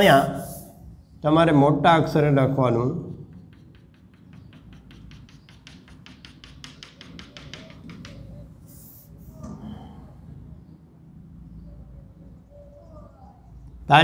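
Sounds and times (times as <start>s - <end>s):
chalk tapping on blackboard: 3.0s - 9.3s
chalk scratch: 3.0s - 9.4s.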